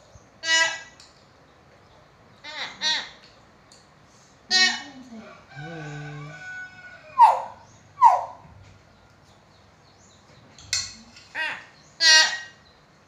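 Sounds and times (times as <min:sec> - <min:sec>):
myna bird calling: 0:04.5 - 0:09.0, 0:10.0 - 0:12.8.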